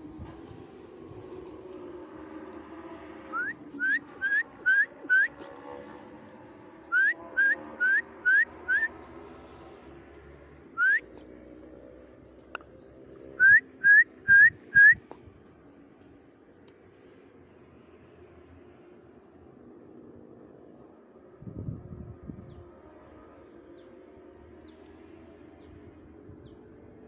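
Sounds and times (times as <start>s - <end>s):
whistled rising notes: 3.3s - 5.4s, 6.9s - 9.0s, 10.8s - 11.1s, 13.4s - 15.0s.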